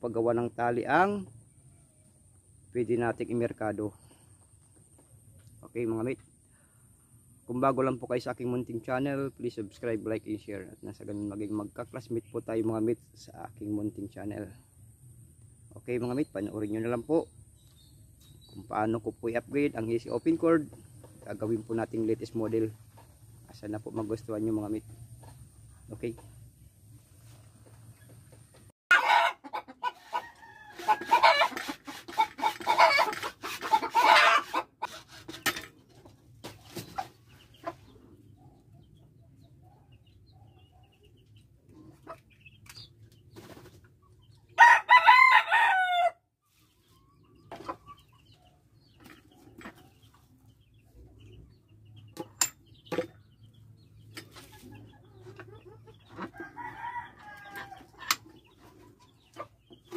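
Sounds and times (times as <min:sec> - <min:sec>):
rooster crowing: 0:28.9 - 0:31.5, 0:44.6 - 0:46.2, 0:56.4 - 0:57.9
hacksaw cutting plastic pipe: 0:30.8 - 0:35.7.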